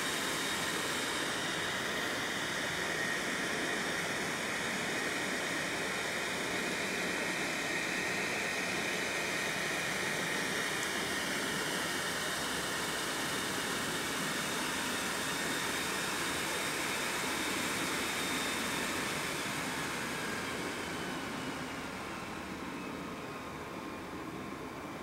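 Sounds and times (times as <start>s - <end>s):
computer blower fan whirring: 0.0s - 25.0s.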